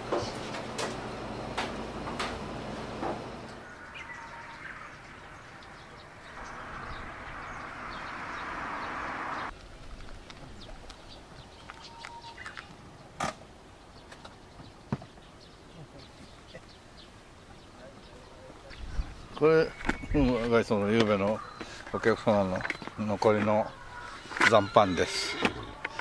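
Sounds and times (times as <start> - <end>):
birds chirping: 0.0 - 9.6, 10.2 - 26.0
steady rushing noise: 6.0 - 10.0.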